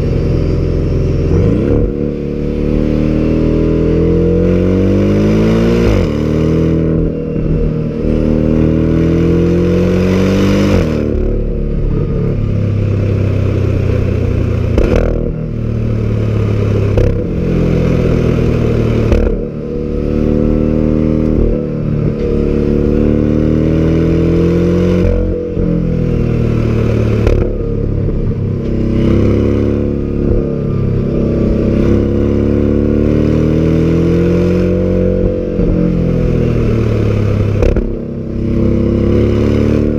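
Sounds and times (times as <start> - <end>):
sports car engine accelerating hard: 0.0 - 39.9
exhaust cracks at gear changes: 14.6 - 15.4, 19.0 - 19.6, 27.1 - 28.8, 35.2 - 38.0.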